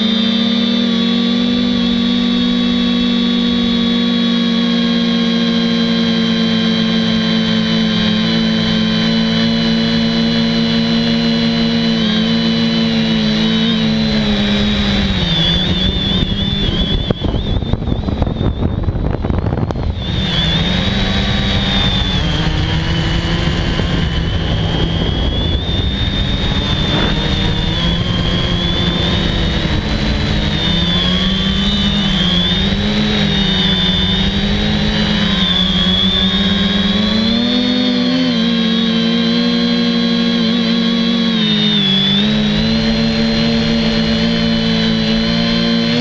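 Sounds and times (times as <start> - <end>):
quadcopter motors whining: 0.0 - 46.0
wind buffeting: 14.0 - 37.2.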